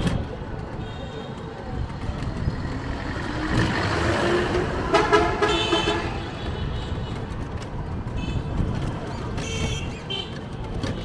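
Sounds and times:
street traffic rumble: 0.0s - 11.0s
vehicle horn: 4.8s - 7.1s, 9.4s - 10.3s.

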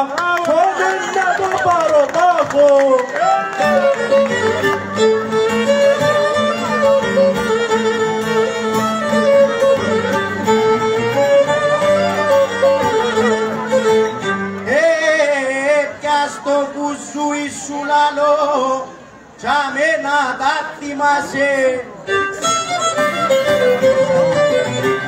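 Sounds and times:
violin folk melody: 3.2s - 15.3s, 22.0s - 25.0s
plucked lute low notes: 3.7s - 14.7s, 22.1s - 25.0s.

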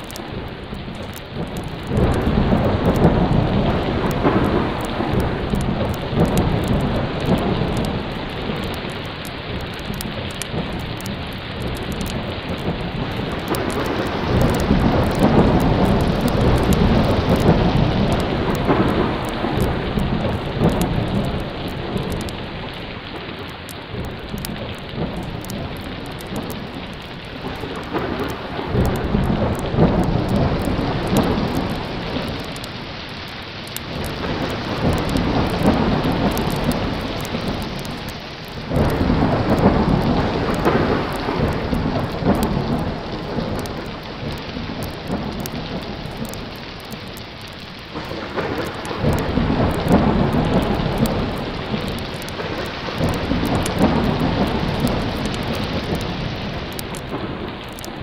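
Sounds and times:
heavy rain pouring: 0.0s - 58.0s
rolling thunder: 0.0s - 58.0s.

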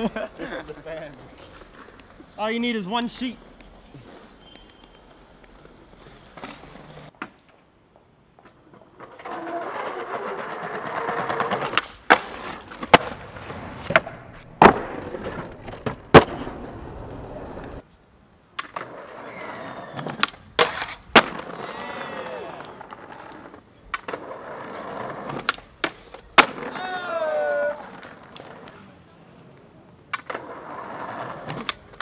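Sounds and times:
skateboard wheels rolling on pavement: 0.0s - 32.0s
skateboard popping and landing: 3.6s - 7.6s, 8.4s - 17.8s, 18.5s - 32.0s.

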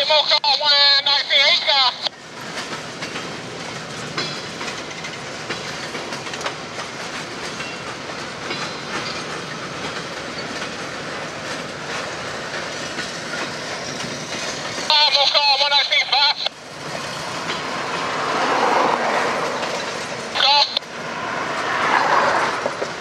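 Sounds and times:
freight train rumbling past: 0.0s - 23.0s
wheels clicking over rail joints: 2.3s - 14.9s.

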